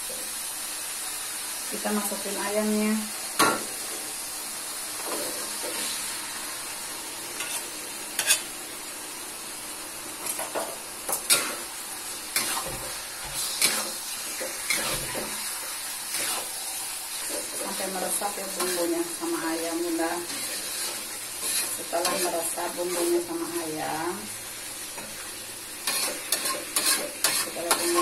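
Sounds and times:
chicken sizzling in a wok: 0:00.0 - 0:28.0
metal spatula scraping a wok: 0:07.4 - 0:08.5, 0:12.3 - 0:15.4, 0:16.1 - 0:16.6, 0:20.3 - 0:23.2, 0:25.8 - 0:28.0.

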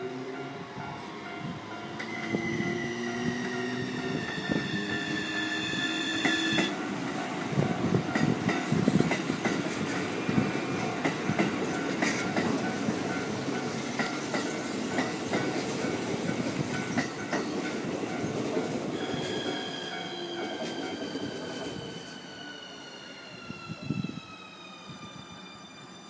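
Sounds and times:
train wheels rumbling and clacking: 0:00.4 - 0:25.6.

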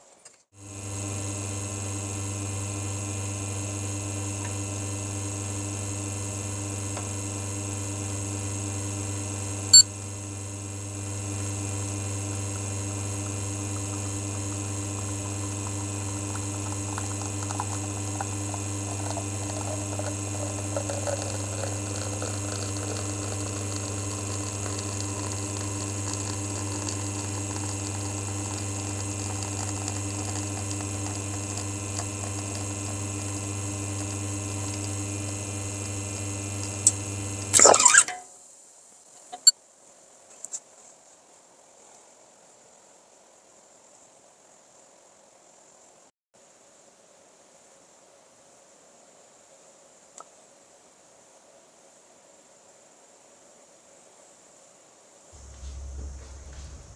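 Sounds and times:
espresso machine pump humming: 0:00.6 - 0:38.0, 0:55.4 - 0:56.9.

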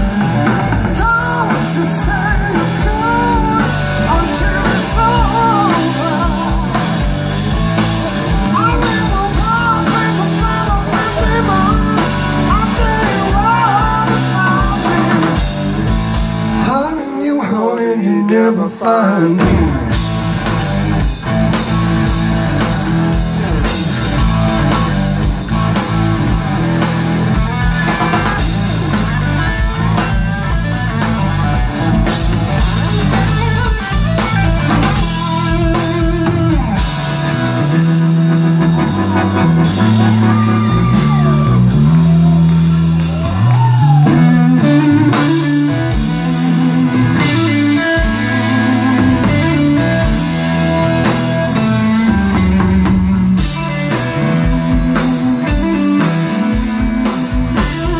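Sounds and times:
electric guitar lead lines: 0:00.0 - 0:17.4, 0:18.7 - 0:57.9
bass guitar: 0:00.0 - 0:57.9
drums: 0:00.0 - 0:57.9.

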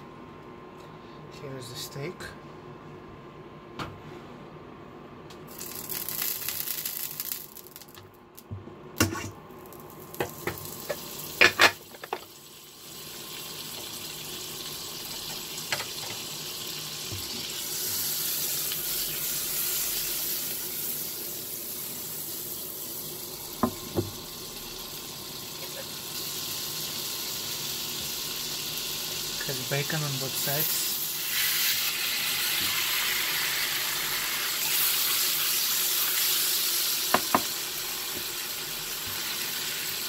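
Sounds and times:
butter sizzling in a frying pan: 0:05.5 - 0:08.0, 0:09.6 - 0:40.0.

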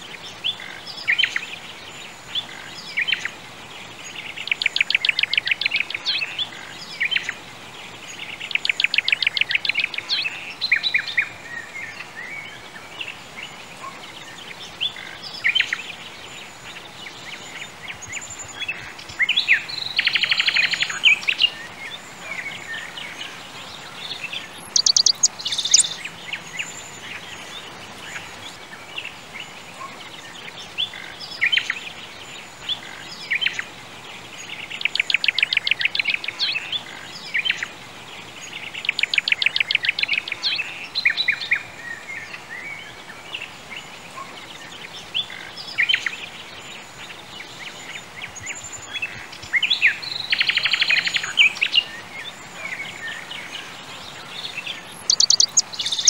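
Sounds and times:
faint steady hiss: 0:00.0 - 0:56.0
birds trilling: 0:23.8 - 0:27.6, 0:50.0 - 0:56.0
short bird chirps: 0:24.7 - 0:26.0, 0:55.1 - 0:56.0.

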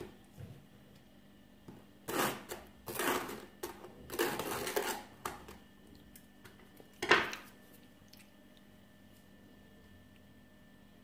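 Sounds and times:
knife scraping butter on toast: 0:02.1 - 0:05.1.

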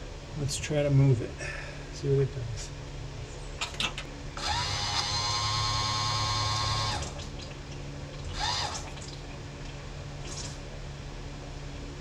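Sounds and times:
electric motor and pump whining: 0:04.4 - 0:07.6, 0:08.2 - 0:09.3.

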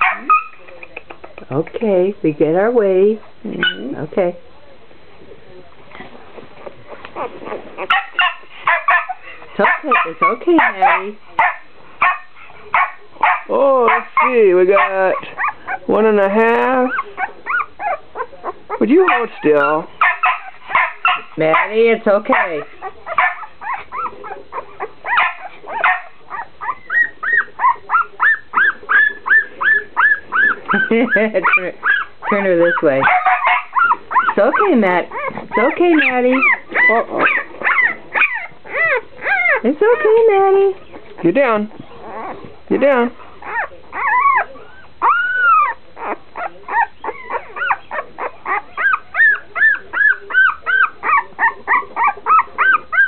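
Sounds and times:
dog whining: 0:06.9 - 0:08.3, 0:16.7 - 0:19.8, 0:22.7 - 0:40.2, 0:40.8 - 0:42.5, 0:43.4 - 0:53.0
puppy squealing: 0:07.2 - 0:11.0, 0:16.7 - 0:21.7, 0:22.5 - 0:40.2, 0:40.8 - 0:42.5, 0:43.4 - 0:53.0.

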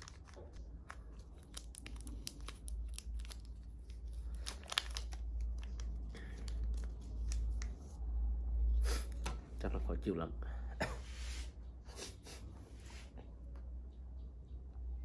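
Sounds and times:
plastic packaging tearing and crinkling: 0:00.0 - 0:07.7.

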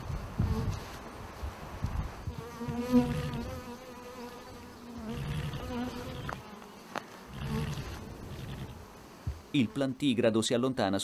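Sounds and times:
bees buzzing: 0:02.2 - 0:09.9.

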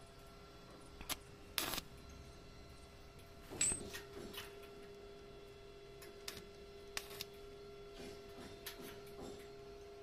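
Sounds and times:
steady hum: 0:00.0 - 0:10.0
arc welder bursts: 0:01.1 - 0:01.9.

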